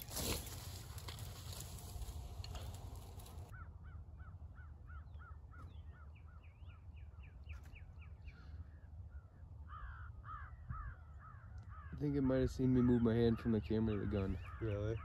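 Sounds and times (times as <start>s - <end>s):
rustle: 0.0s - 3.5s
low wind rumble: 0.0s - 15.0s
crows cawing: 0.1s - 6.1s, 9.1s - 15.0s
higher-pitched crow cawing: 2.5s - 5.6s, 9.6s - 13.0s.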